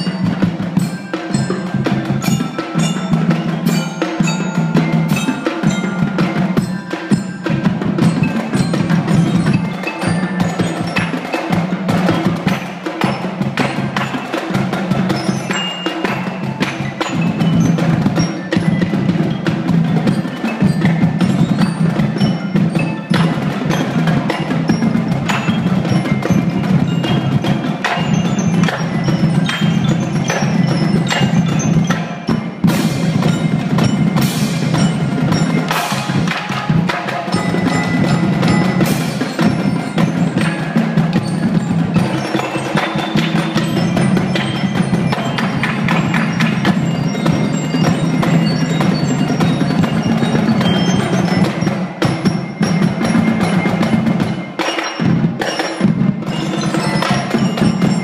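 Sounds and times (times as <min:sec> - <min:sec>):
hand cymbals: 0:00.0 - 0:58.0
marching snare drums: 0:00.0 - 0:58.0
tenor drums: 0:00.0 - 0:58.0.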